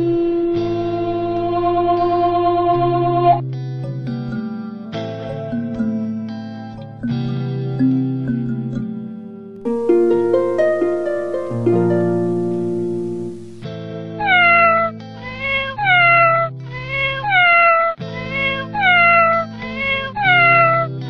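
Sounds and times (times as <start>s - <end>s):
plucked harp music: 1.3s - 13.6s
kitten meowing: 14.2s - 20.9s.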